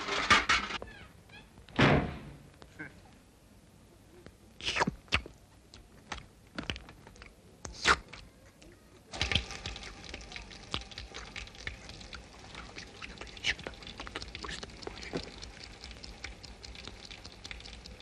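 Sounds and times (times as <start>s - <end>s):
small crackling clicks: 8.5s - 18.0s.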